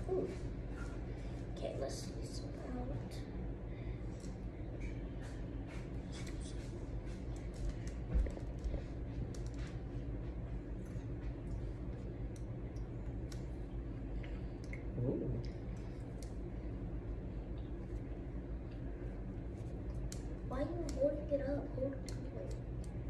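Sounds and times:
low steady hum: 0.0s - 23.0s
faint clicks and rustles: 4.1s - 13.6s.

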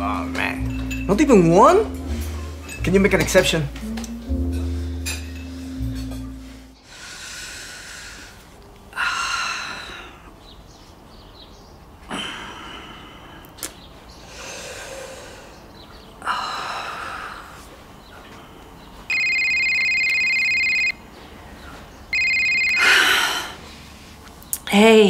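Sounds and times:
woman breathing heavily and sighing: 22.8s - 23.9s.

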